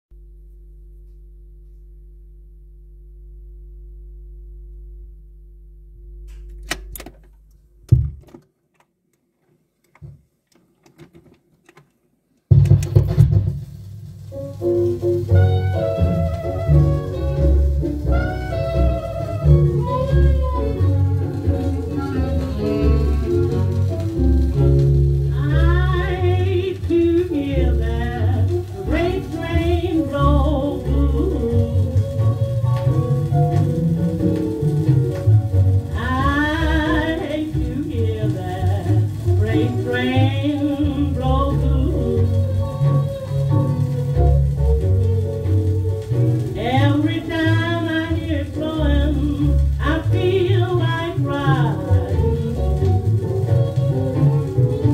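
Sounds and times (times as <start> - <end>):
walking bass: 0.1 - 8.3, 12.5 - 54.9
record player hum: 0.1 - 54.9
sharp clicks: 6.2 - 9.2
drums: 7.8 - 8.4, 12.5 - 54.9
thump: 7.9 - 8.4, 12.5 - 13.8
piano: 12.5 - 54.9.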